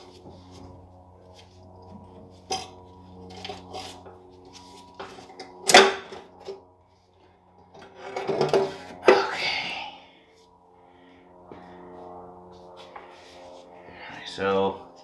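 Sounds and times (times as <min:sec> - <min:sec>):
metal cover clattering and scraping: 0:07.8 - 0:09.2.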